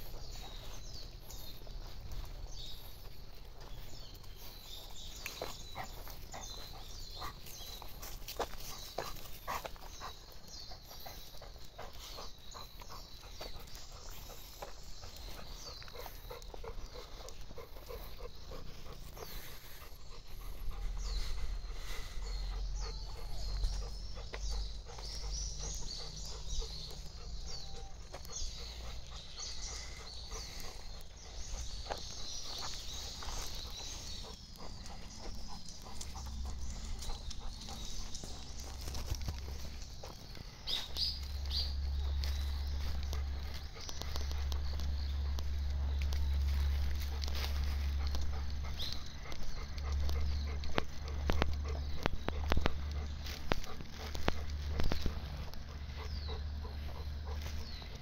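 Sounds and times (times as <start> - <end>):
dog panting: 0.0 - 58.0
footsteps on asphalt: 0.0 - 58.0
low rumble on microphone: 12.1 - 58.0.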